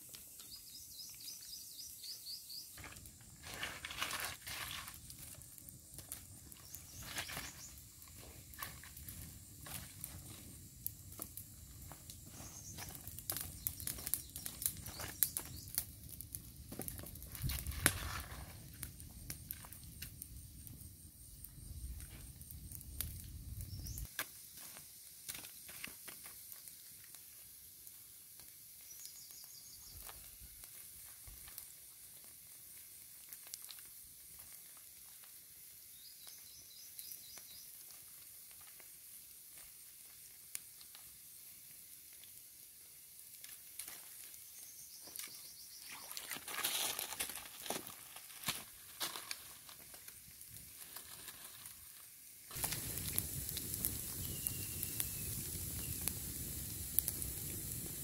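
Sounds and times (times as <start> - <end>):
food sizzling in a pan: 23.7 - 46.0, 47.0 - 58.0.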